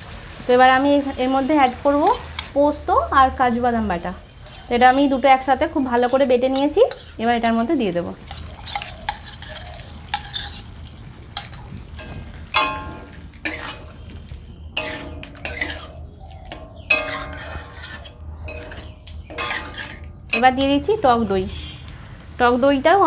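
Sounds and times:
metal spatula scraping pan: 1.5s - 2.8s, 3.6s - 7.6s, 8.2s - 21.9s
metal pan ringing: 11.3s - 21.8s.

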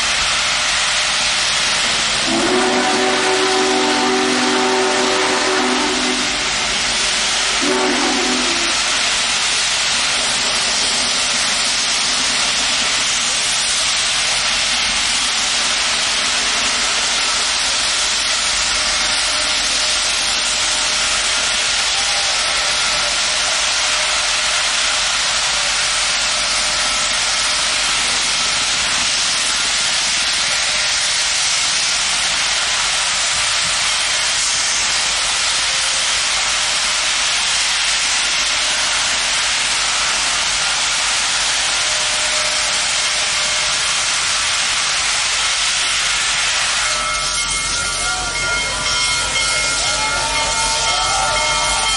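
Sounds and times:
steam venting hiss: 0.0s - 51.9s
chime whistle: 46.7s - 51.9s.

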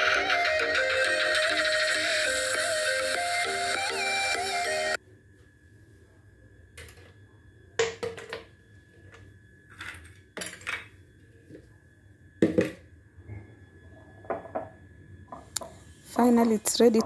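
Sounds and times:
faint steady high tone: 8.6s - 17.0s.

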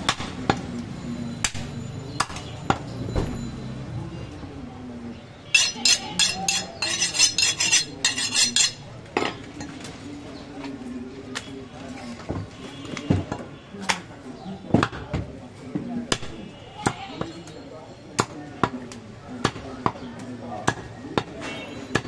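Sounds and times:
metallic clinks and scrapes: 5.5s - 8.9s.

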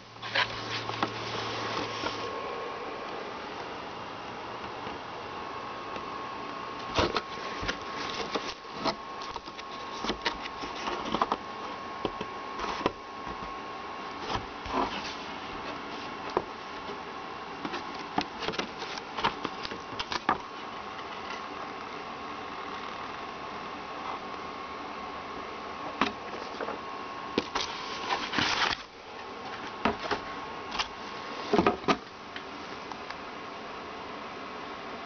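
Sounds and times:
cardboard and paper rustling: 0.2s - 2.3s, 6.8s - 17.0s, 17.6s - 21.5s, 27.4s - 32.1s.

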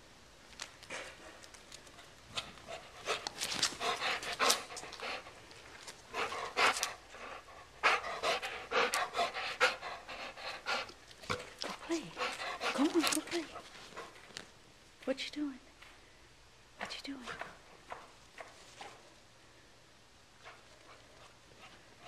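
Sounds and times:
dog panting: 0.9s - 14.4s, 17.2s - 19.0s.

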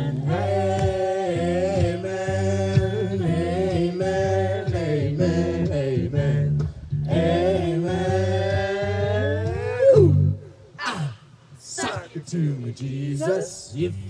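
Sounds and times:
bass line: 0.0s - 10.5s
voices singing: 0.0s - 14.0s.

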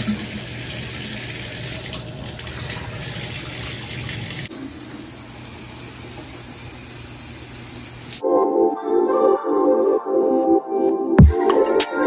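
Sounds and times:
faucet water into tub: 0.0s - 8.2s
shower spraying on tiled wall: 0.0s - 8.2s.

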